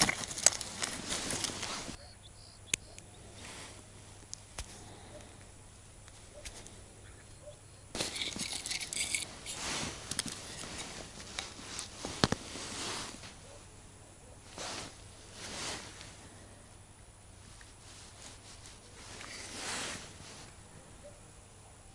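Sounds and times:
fishing tackle rustling: 0.0s - 2.0s, 7.9s - 13.5s, 14.5s - 16.3s, 17.5s - 20.6s.

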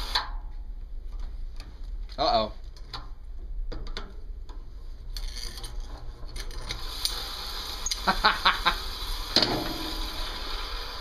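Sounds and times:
small electric motor hissing: 6.7s - 11.0s.

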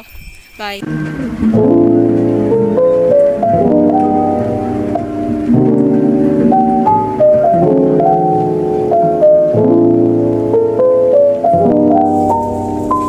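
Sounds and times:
keyboard melody over chords: 0.8s - 13.0s.

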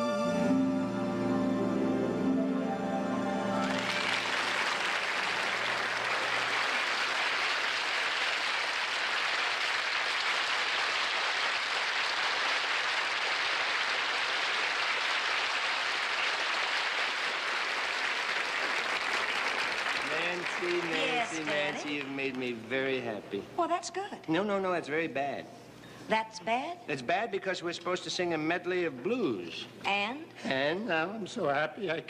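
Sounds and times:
music held chord: 0.0s - 4.6s
audience applauding: 3.5s - 22.7s.

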